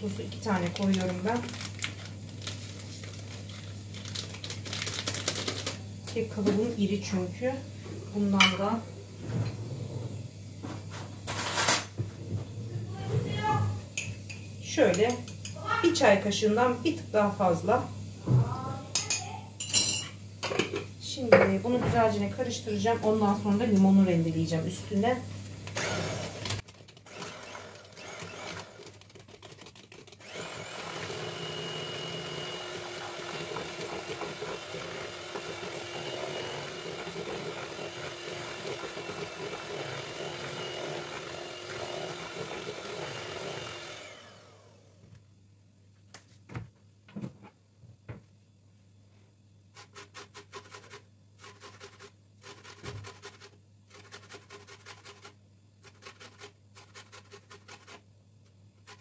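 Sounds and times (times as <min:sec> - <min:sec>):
electric hand mixer beating batter: 0:25.8 - 0:44.9
lemon scraping on metal grater: 0:49.8 - 0:58.0.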